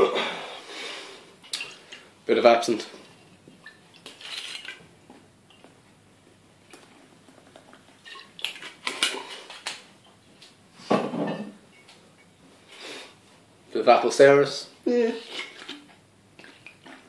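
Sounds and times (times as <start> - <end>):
liquid pouring: 6.7 - 9.6.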